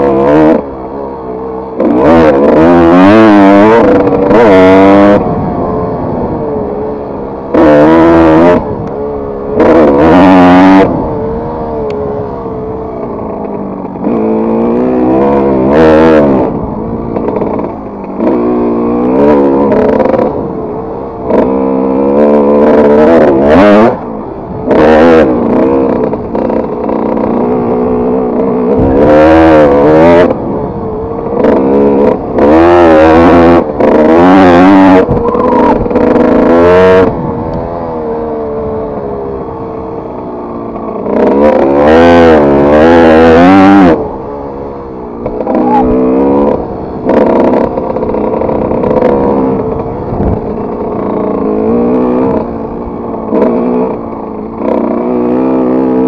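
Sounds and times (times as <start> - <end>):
motocross engine revving: 0.0 - 56.0.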